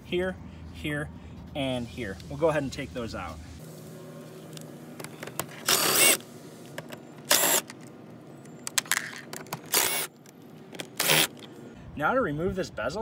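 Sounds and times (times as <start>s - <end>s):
cordless drill running: 5.7s - 6.2s, 7.3s - 7.6s, 9.7s - 10.1s, 11.0s - 11.3s.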